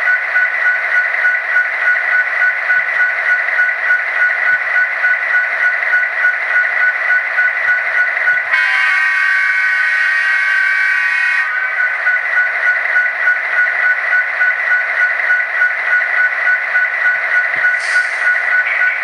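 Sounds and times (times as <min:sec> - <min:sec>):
rhythmic diesel engine sound: 0:00.0 - 0:19.0
air horn blast: 0:08.5 - 0:11.6.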